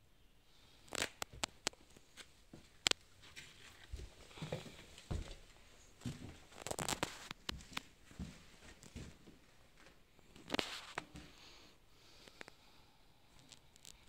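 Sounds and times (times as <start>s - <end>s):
footsteps: 2.2s - 11.4s.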